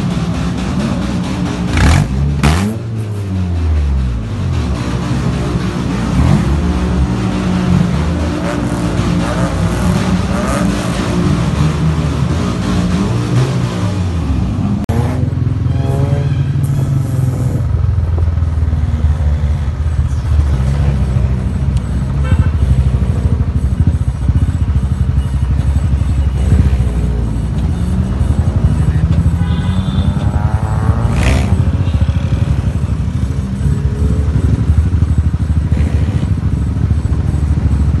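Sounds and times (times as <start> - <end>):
music: 0.0 - 14.4
car exhausts: 0.0 - 38.0
motorcycle engine rumbling: 0.0 - 38.0.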